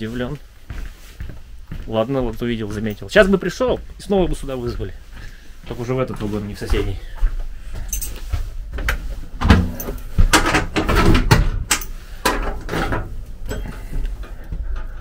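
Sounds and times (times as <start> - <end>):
door clattering and knocking: 9.4 - 13.9.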